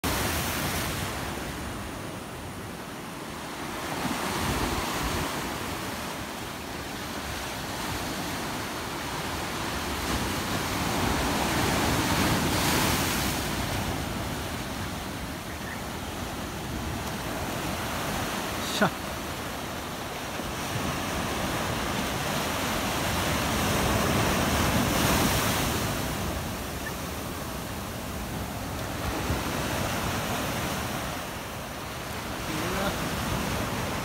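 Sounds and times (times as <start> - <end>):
sea waves washing: 0.0 - 34.0.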